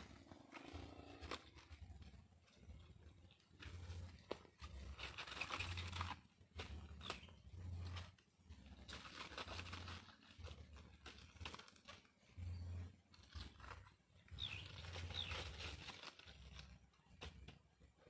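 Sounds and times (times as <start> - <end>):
dry leaves rustling and crackling: 4.7 - 12.1, 14.4 - 16.8.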